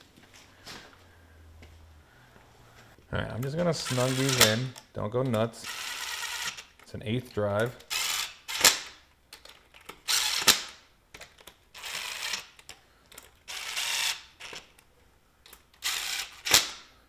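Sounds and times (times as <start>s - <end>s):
cordless ratchet whirring: 3.8s - 4.7s, 5.6s - 6.8s, 7.8s - 9.0s, 10.0s - 10.8s, 11.8s - 14.8s, 15.5s - 16.8s.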